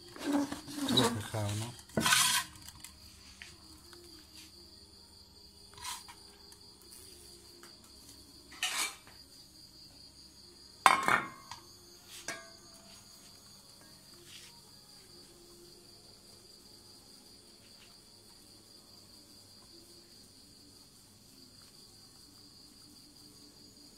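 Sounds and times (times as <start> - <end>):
crickets chirring: 0.0 - 23.9
pot and plate clinking: 8.5 - 9.1, 10.9 - 11.6, 12.3 - 12.5.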